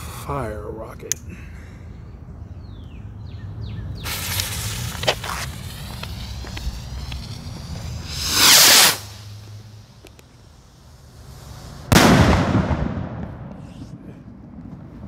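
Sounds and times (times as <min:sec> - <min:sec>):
rocket launching whoosh: 0:04.0 - 0:10.0, 0:11.2 - 0:13.5
fuse hissing and sputtering: 0:04.0 - 0:11.9.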